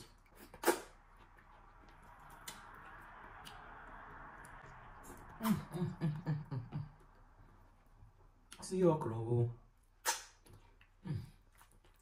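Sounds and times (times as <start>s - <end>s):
wet mouth clicks while chewing: 0.0s - 5.5s, 10.0s - 12.0s
person humming while chewing: 10.8s - 12.0s.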